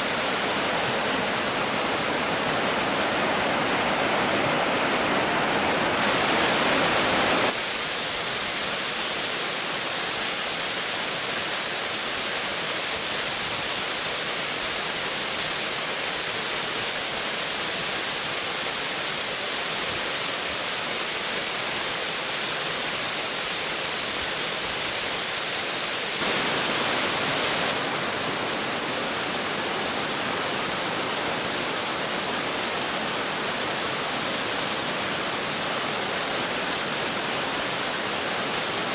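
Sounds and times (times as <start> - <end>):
rushing water of creek and waterfall: 0.0 - 38.9.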